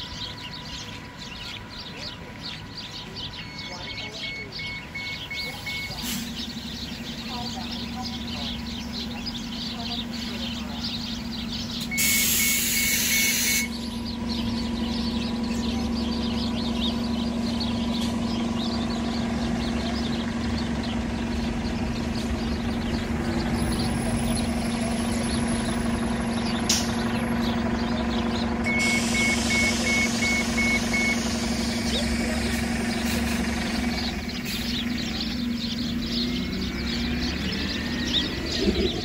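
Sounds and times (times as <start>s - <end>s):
bus engine idling: 0.0s - 39.0s
sparrows chirping: 0.0s - 39.0s
rapid beeping tone: 3.4s - 6.0s, 28.7s - 31.3s.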